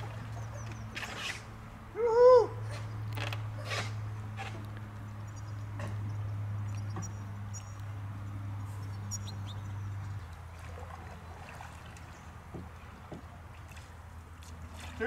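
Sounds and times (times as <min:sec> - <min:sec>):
canoe paddle splashing in water: 0:00.0 - 0:01.7, 0:10.1 - 0:15.0
bird chirps: 0:05.2 - 0:07.9, 0:08.7 - 0:10.1.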